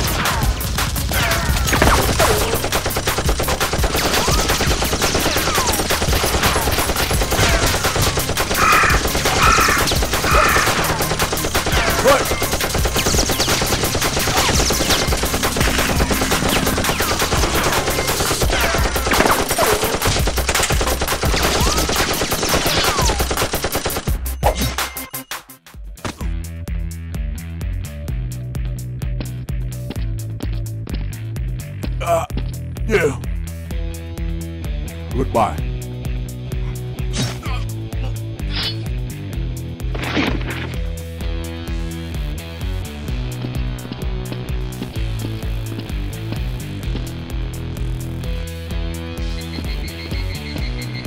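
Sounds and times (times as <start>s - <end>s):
rapid automatic gunfire: 0.0s - 24.2s.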